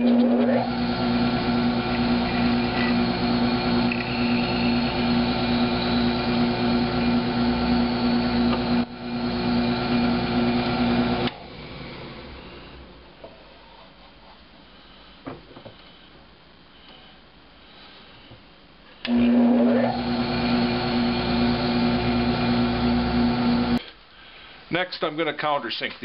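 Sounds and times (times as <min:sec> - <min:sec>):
drill press motor humming: 0:00.0 - 0:12.9, 0:19.0 - 0:23.8
drilling into plywood: 0:00.5 - 0:11.4, 0:19.1 - 0:23.8.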